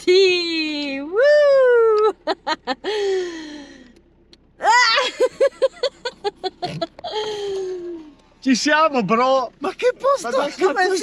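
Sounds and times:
person laughing: 2.0s - 3.2s, 4.9s - 8.0s
person crying out: 4.6s - 5.3s
person yelping: 4.6s - 5.3s.

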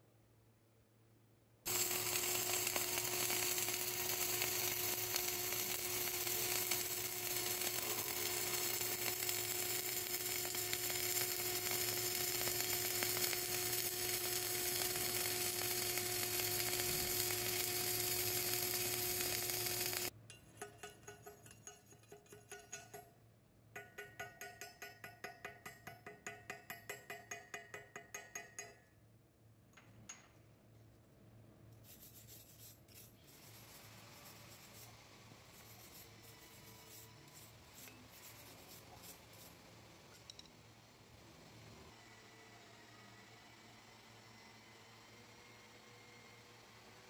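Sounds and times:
welding arc crackling sizzle: 1.7s - 20.1s, 33.3s - 40.4s.

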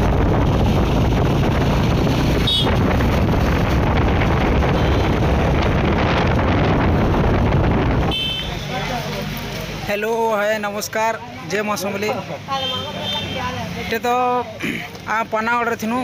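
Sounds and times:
wind buffeting microphone: 0.0s - 8.2s
scooter engine humming: 0.0s - 9.6s.

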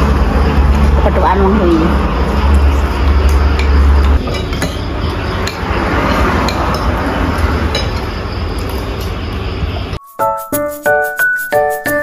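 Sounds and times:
low rumble of eatery: 0.0s - 10.0s
plucked background music: 10.0s - 12.0s.

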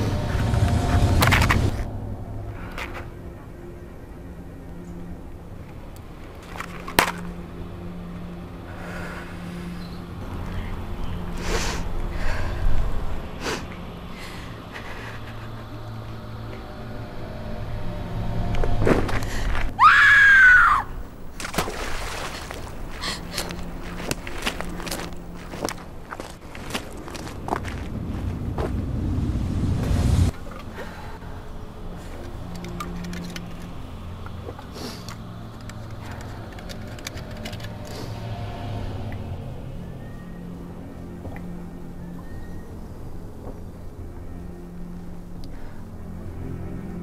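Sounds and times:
low droning tones: 0.0s - 47.0s
woman screaming in anguish: 19.8s - 20.9s
hissing swells: 27.3s - 32.8s
sharp clicks and ticks: 32.4s - 37.9s.

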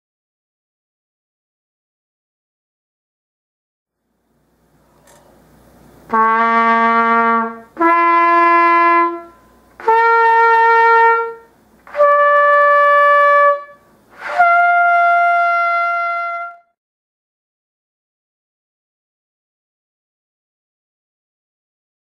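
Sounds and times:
trumpet playing held notes: 6.1s - 16.8s.

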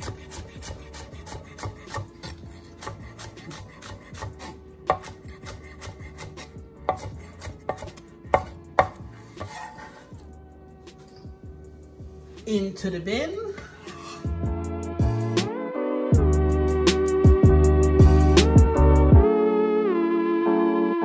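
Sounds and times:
knife chopping on wooden board: 0.0s - 10.2s.

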